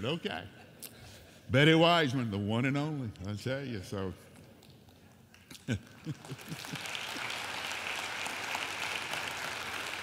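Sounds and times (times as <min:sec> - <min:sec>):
congregation applauding: 0:05.3 - 0:10.0
people laughing: 0:05.5 - 0:07.3.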